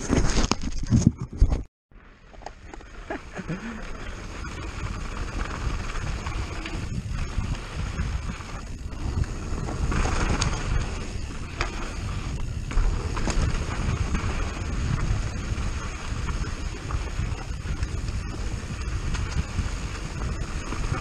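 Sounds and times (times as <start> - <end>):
bike tyres on dirt: 1.9 - 21.0
wind buffeting microphone: 3.5 - 21.0
bike clicks and knocks: 5.4 - 21.0.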